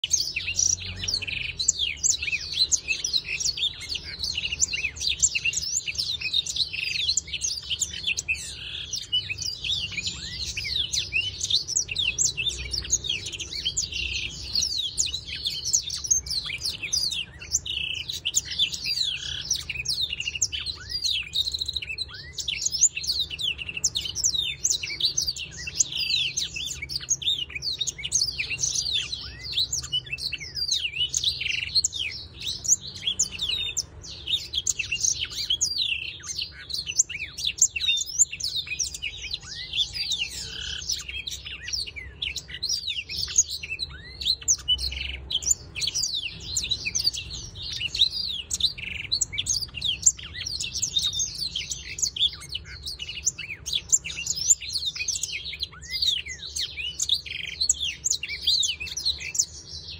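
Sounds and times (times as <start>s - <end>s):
canary singing: 0.0s - 59.9s.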